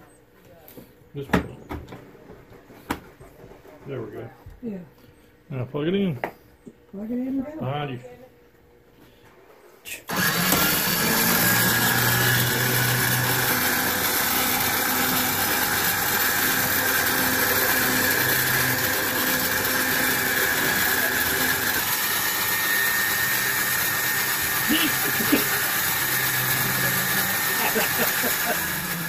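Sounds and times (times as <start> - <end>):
ice cream maker motor running: 10.1 - 29.0
thin high motor whine: 10.1 - 29.0.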